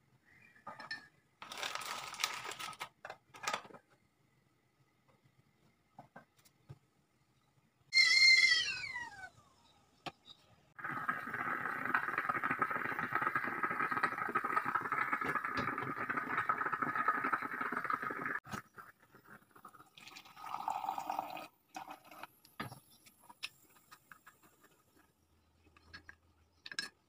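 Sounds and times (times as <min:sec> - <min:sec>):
coffee pouring: 0:10.8 - 0:22.3
moka pot gurgling and sputtering: 0:10.8 - 0:25.2.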